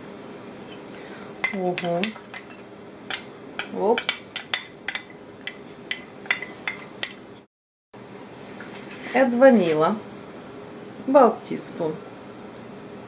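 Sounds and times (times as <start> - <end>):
metal spoon clinking glass bowl: 1.4 - 7.2.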